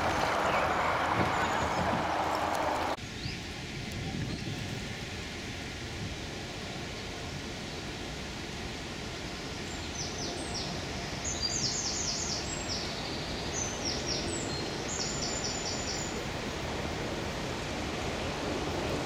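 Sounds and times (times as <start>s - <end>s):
songbird singing: 0.0s - 4.6s, 9.6s - 16.3s
outdoor background hiss: 0.0s - 19.0s.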